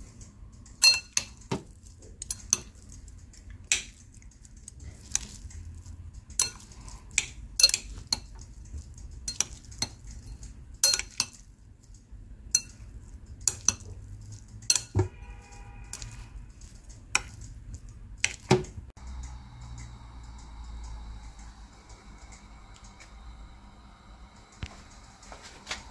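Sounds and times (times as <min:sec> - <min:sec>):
steady low hum: 0:16.5 - 0:25.9.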